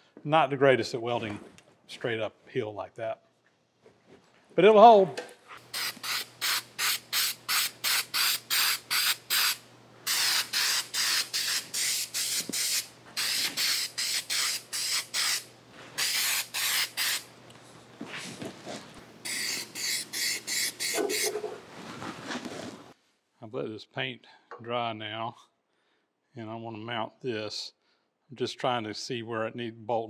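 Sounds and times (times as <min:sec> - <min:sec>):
spray-paint can hissing: 0:05.6 - 0:17.3, 0:19.2 - 0:21.5.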